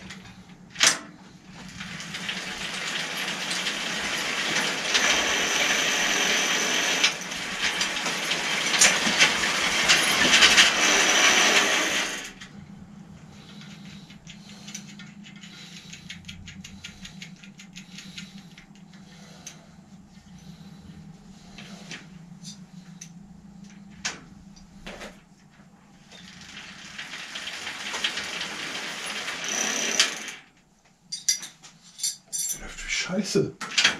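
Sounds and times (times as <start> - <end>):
bicycle parts clicking and rattling: 13.4 - 19.6.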